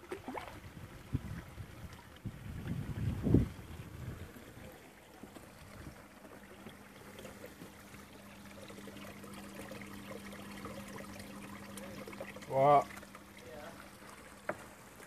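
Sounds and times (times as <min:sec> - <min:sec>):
water trickling into a pond: 0:00.0 - 0:15.0.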